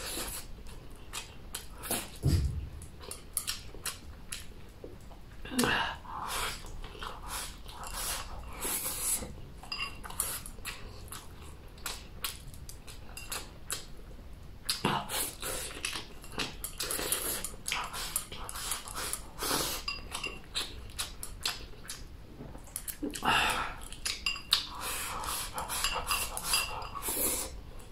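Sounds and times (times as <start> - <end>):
chewing: 0.0 - 5.4, 6.2 - 14.0, 14.6 - 27.9
chopsticks scraping a ceramic bowl: 6.6 - 10.5, 24.2 - 27.4.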